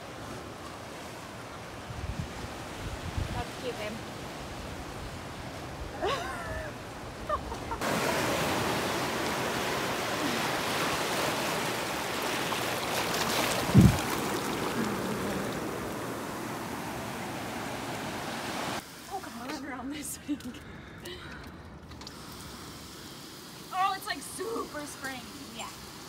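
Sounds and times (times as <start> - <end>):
surf washing over sand and rocks: 0.0 - 19.6.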